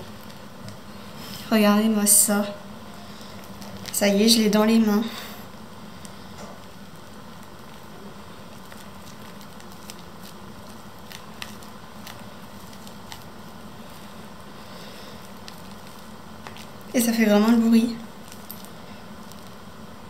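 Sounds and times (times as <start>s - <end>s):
slime crackling and popping: 0.0s - 0.9s, 5.9s - 19.9s
steady low hiss: 0.0s - 20.0s.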